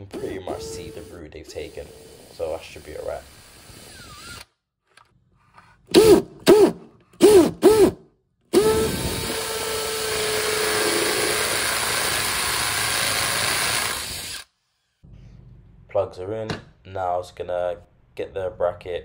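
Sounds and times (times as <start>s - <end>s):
drill drilling into wall: 0.2s - 4.5s, 5.9s - 14.5s.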